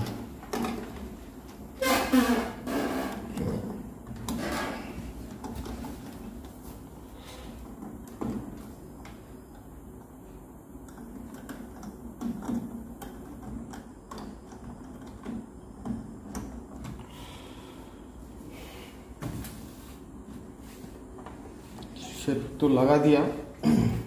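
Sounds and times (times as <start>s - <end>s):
plastic parts clicking and knocking: 0.0s - 1.6s, 10.8s - 17.0s.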